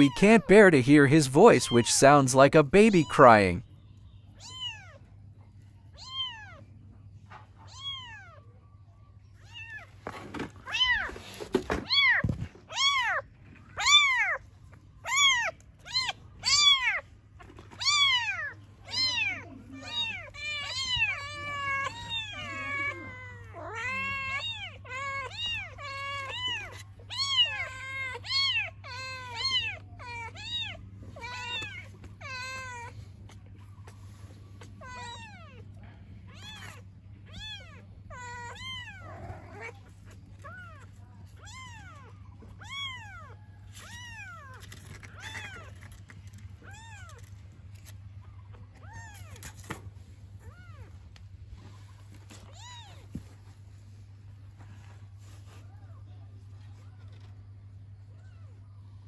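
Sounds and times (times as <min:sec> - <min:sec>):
kitten meowing: 0:17.8 - 0:32.9.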